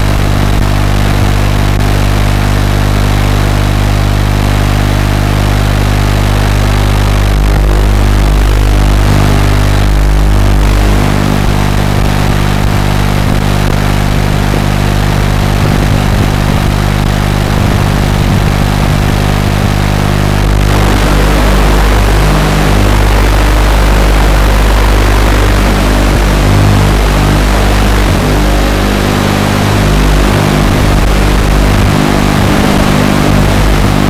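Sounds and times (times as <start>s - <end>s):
quadcopter buzzing hum: 0.0s - 34.0s.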